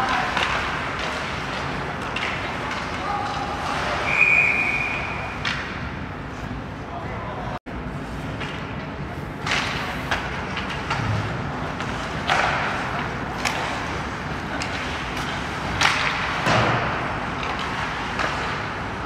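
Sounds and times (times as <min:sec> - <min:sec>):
sticks clacking on puck: 0:00.0 - 0:04.0, 0:08.4 - 0:18.8.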